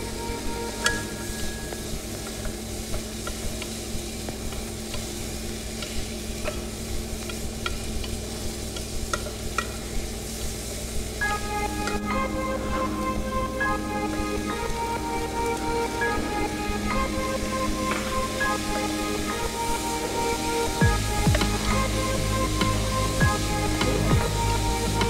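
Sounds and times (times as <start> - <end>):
background music: 0.0 - 2.8, 11.2 - 25.0.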